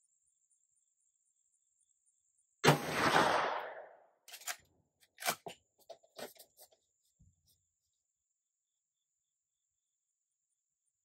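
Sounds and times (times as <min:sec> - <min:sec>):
gunshot echoing: 0:02.6 - 0:04.0.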